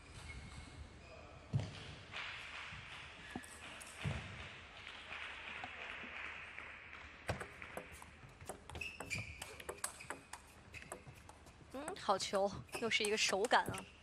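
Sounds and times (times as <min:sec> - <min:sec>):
table tennis ball clicking: 0:07.3 - 0:14.0
shoe squeak: 0:08.5 - 0:14.0.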